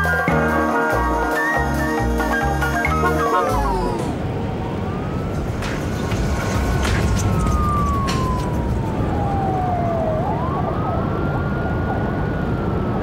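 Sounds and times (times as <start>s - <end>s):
police siren wailing: 0.0s - 13.0s
low rumble: 3.5s - 10.5s.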